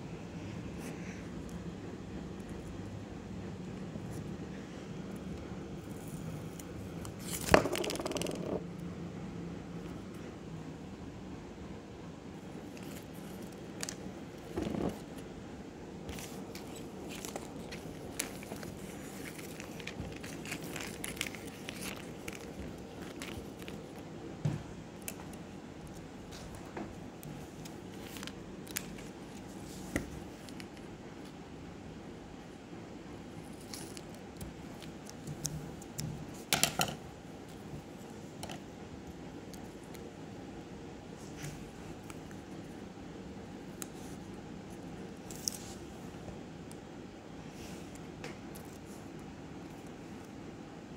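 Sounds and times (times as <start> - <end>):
paper crinkling and rustling: 5.8 - 7.9, 16.0 - 24.1, 25.0 - 31.4, 33.4 - 36.8, 43.7 - 46.2.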